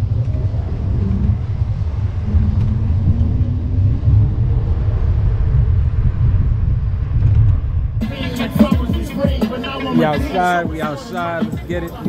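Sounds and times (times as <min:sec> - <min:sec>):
wind buffeting microphone: 0:00.0 - 0:09.3
faint rising hum: 0:00.0 - 0:11.4.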